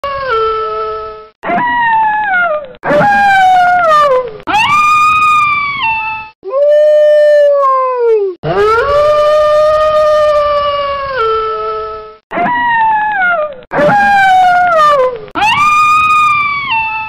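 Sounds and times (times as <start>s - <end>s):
wolves howling: 8.4s - 10.7s.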